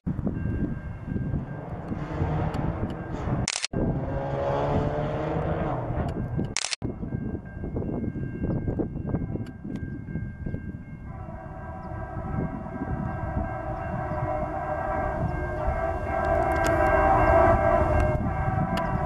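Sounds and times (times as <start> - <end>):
low rumble of train: 0.0 - 19.0
locomotive air horn: 11.0 - 19.0.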